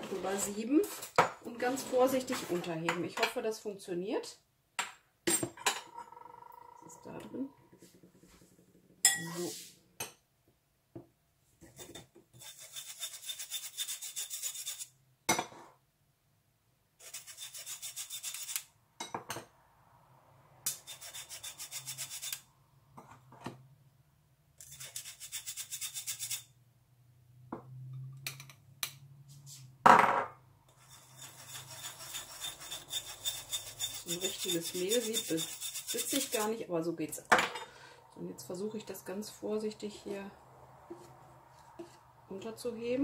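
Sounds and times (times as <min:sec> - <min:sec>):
flour sifting through sieve: 0:33.9 - 0:36.6.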